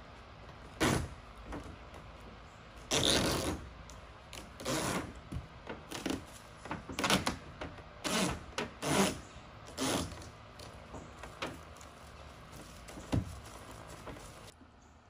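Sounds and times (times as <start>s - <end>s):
tape ripping off roll: 0.7s - 1.2s, 2.8s - 3.7s, 4.3s - 14.5s.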